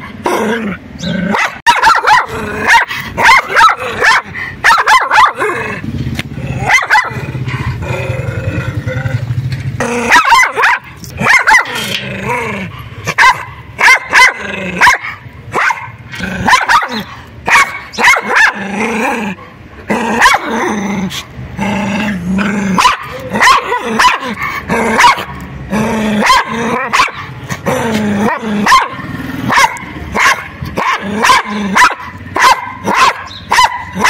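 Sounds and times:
dog barking: 1.3s - 5.6s, 6.6s - 7.2s, 10.1s - 11.8s, 13.1s - 18.6s, 20.2s - 20.5s, 22.8s - 24.3s, 25.0s - 25.3s, 26.2s - 27.3s, 28.3s - 34.0s
dog growling: 5.3s - 13.1s, 16.1s - 17.2s, 18.2s - 29.7s, 30.8s - 33.0s.

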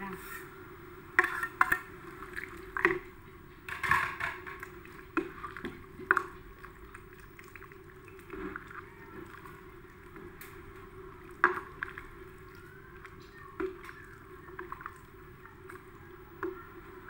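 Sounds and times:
ladle stirring soup: 0.2s - 17.0s
ladle knocking metal pot: 3.7s - 4.7s.

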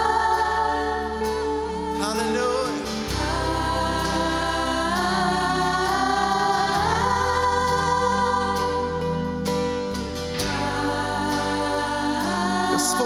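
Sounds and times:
woman singing into a microphone: 0.0s - 9.5s
worship band music: 0.0s - 13.0s.

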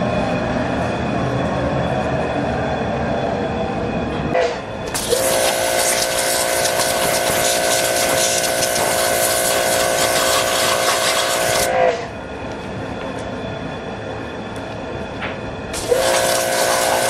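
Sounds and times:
steady whine: 0.0s - 17.0s
pressure washer spray hissing: 5.0s - 11.7s, 15.8s - 17.0s.

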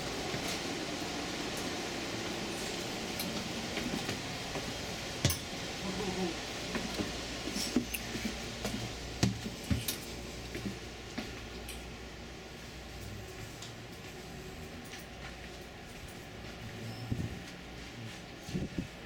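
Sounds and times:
steady low hum: 0.0s - 19.0s
footsteps on stairs: 1.6s - 5.8s, 6.5s - 11.5s.

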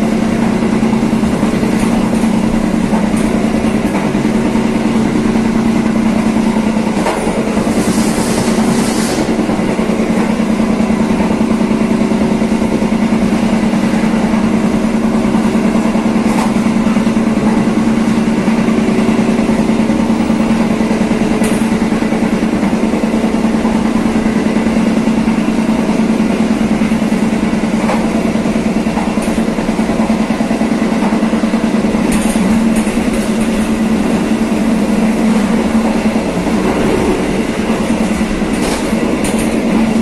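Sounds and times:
train drone from on board: 0.0s - 40.0s.

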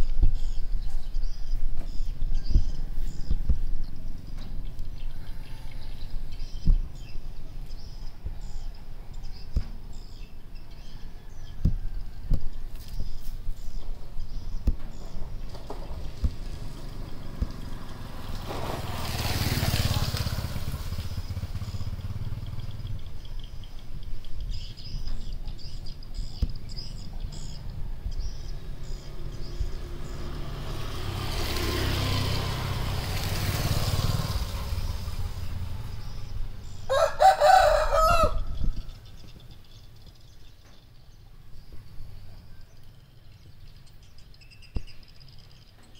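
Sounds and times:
rooster crowing: 36.9s - 38.8s.

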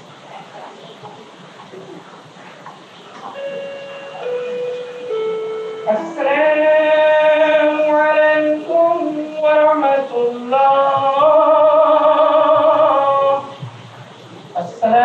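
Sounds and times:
slow melody of long held notes: 3.3s - 13.5s.

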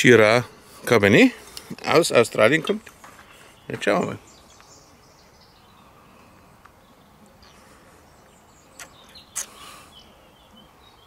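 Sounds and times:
lips smacking: 8.8s - 9.7s
breath out: 9.4s - 10.0s.

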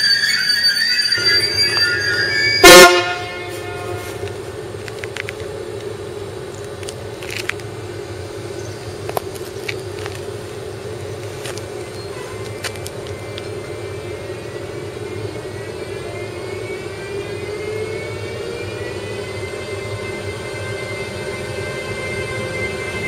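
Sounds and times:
train wheels squealing: 0.0s - 4.3s, 11.1s - 23.0s
electric locomotive hum: 0.0s - 23.0s
loud train horn blast: 1.2s - 4.3s.

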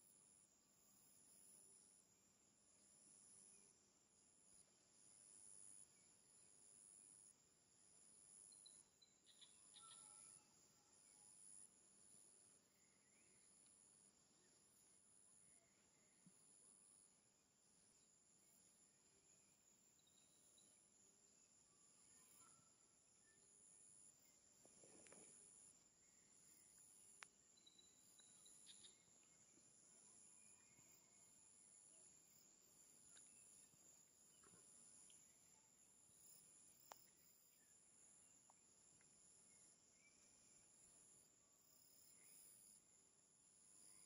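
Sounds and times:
high-pitched insect chorus: 2.7s - 17.2s, 17.8s - 44.0s
short bird chirps: 8.6s - 10.4s.

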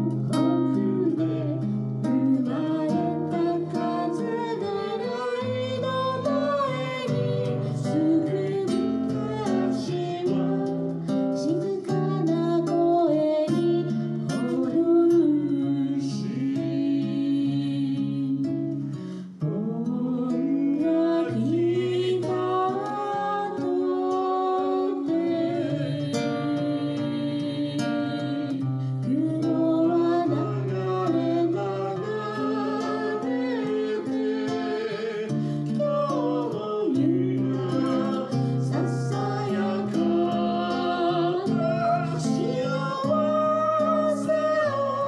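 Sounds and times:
acoustic guitar strumming: 0.0s - 45.0s
man singing into a microphone: 19.6s - 45.0s.

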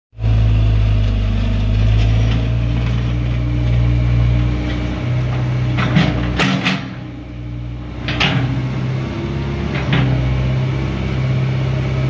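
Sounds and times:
diesel engine running under load: 0.2s - 12.0s.

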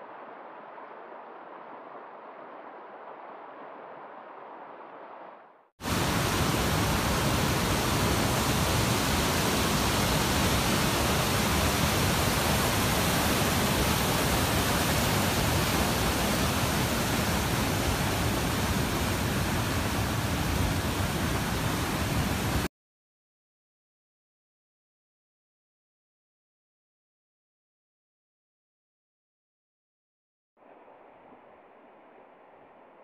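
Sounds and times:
waterfall rushing: 5.8s - 22.7s.

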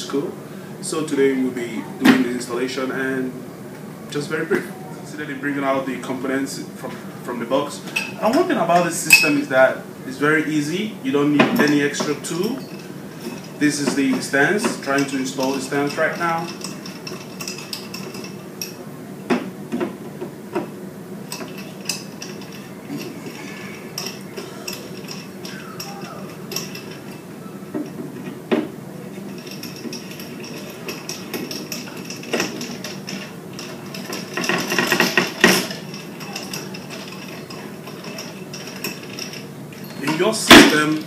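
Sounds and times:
metal rods clinking and knocking: 7.9s - 9.5s, 11.3s - 41.0s.

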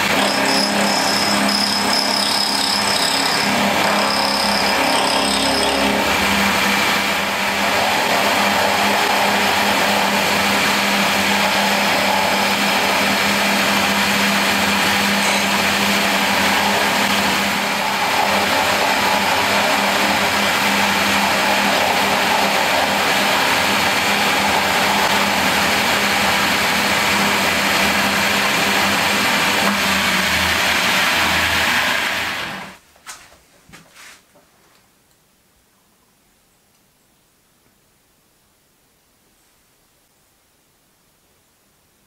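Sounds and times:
milling machine cutting metal: 0.0s - 32.8s.

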